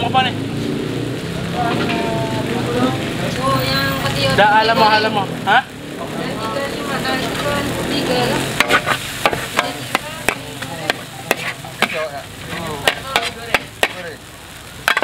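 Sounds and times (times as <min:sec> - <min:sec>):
steady sizzle: 0:00.0 - 0:15.0
metal spatula clanking on a wok: 0:08.6 - 0:12.1, 0:12.8 - 0:14.0.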